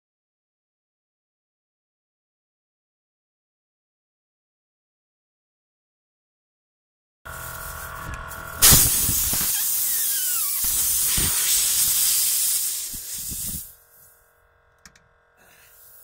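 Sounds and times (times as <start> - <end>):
air hissing from tire: 7.3 - 14.2, 15.4 - 16.0
falling whistle: 9.4 - 11.6.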